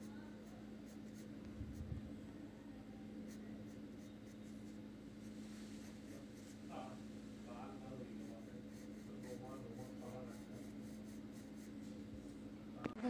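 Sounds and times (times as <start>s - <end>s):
steady low hum: 0.0s - 13.0s
pencil scratching on paper: 0.4s - 1.3s, 7.8s - 12.0s.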